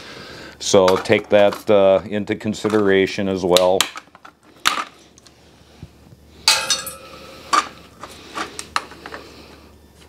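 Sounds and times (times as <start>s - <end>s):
loud ringing metal clank: 6.5s - 7.4s
metal tools clinking on metal: 6.5s - 7.4s.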